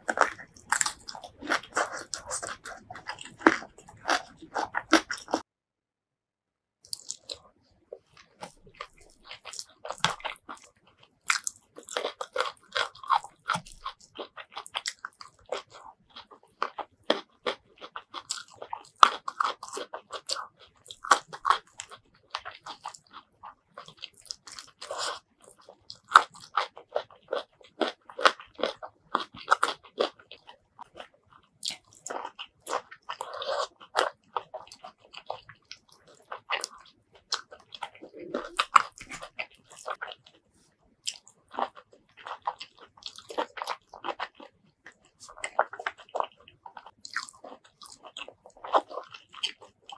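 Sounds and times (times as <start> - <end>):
crunching vegetable bites: 0.0 - 5.4, 6.8 - 7.4, 8.0 - 40.4, 41.0 - 49.9
wet chewing: 0.0 - 5.4, 6.8 - 49.9.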